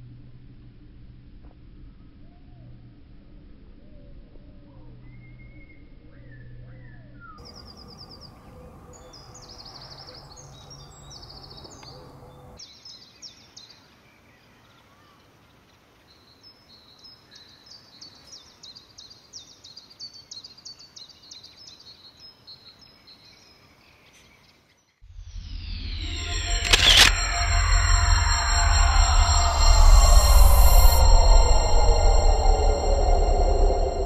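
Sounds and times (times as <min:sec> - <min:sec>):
birds chirping and trilling: 0:07.4 - 0:13.4
low outdoor rumble: 0:25.1 - 0:34.0.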